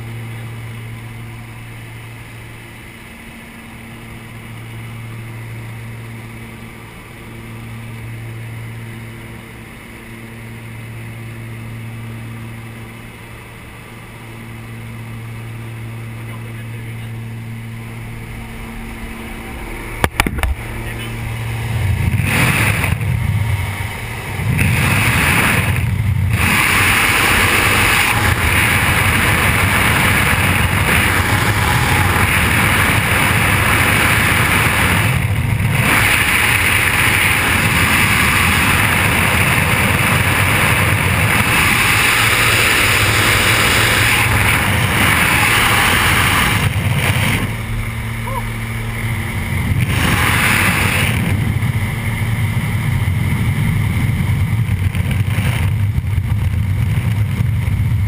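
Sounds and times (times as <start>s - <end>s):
plane engine droning: 0.0s - 58.0s
loud rushing wind: 17.2s - 58.0s.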